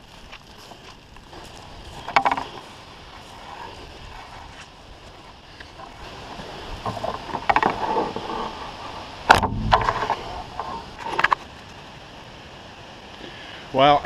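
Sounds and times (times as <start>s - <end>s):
rustle of leaves and branches: 0.0s - 14.0s
sharp knock: 9.3s - 10.3s.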